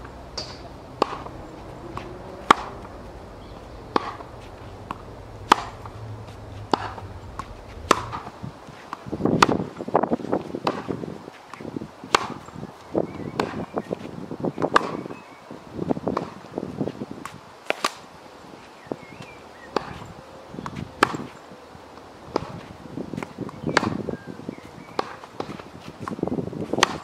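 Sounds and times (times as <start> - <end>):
tennis ball hit by racket: 0.0 - 9.6, 12.1 - 12.4, 22.3 - 24.0, 25.0 - 27.0
footsteps scuffing on court: 25.2 - 26.2.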